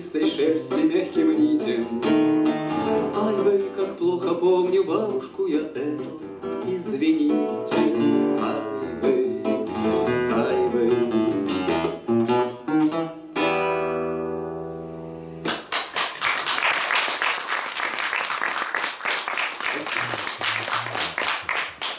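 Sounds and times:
classical guitar playing: 0:00.0 - 0:15.6
audience applauding: 0:15.5 - 0:21.9.

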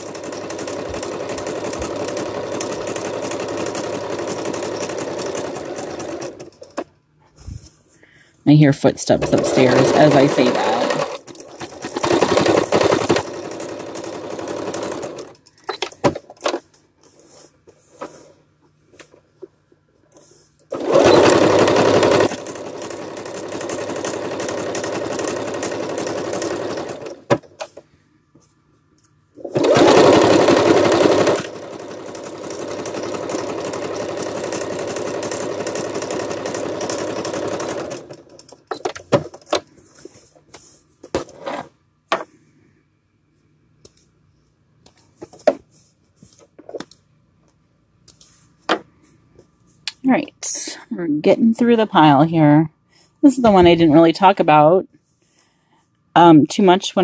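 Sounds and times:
sewing machine stitching: 0:00.0 - 0:06.8, 0:09.1 - 0:16.6, 0:20.7 - 0:27.7, 0:29.4 - 0:39.5.

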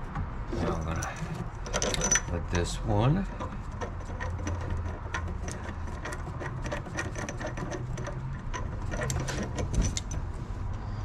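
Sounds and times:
metallic clicking of bolt turning: 0:01.0 - 0:02.5, 0:03.3 - 0:10.3.

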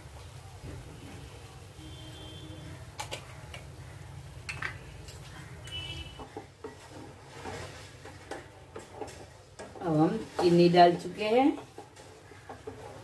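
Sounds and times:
spatula scraping frying pan: 0:05.9 - 0:13.0.

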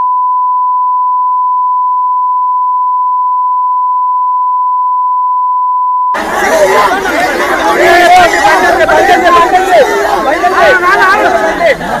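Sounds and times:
steady test tone beep: 0:00.0 - 0:06.2.

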